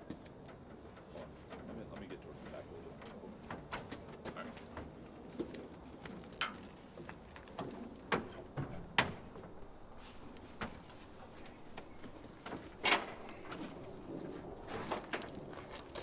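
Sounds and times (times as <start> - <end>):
knocks and clunks on tailgate: 7.5 - 9.6.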